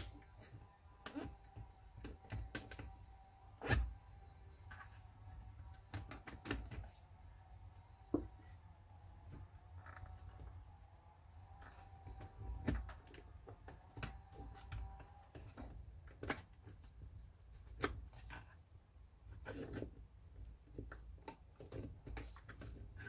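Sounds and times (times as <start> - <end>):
plastic parts clicking and tapping: 5.6 - 6.9, 11.5 - 18.6.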